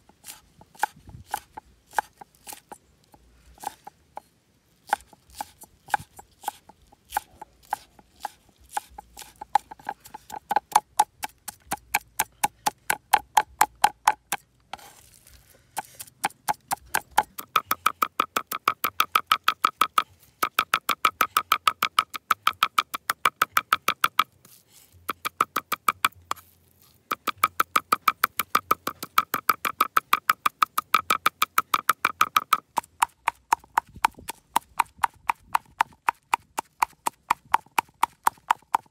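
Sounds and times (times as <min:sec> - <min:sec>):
cleaver chopping meat on board: 0:04.8 - 0:14.4, 0:27.1 - 0:38.9.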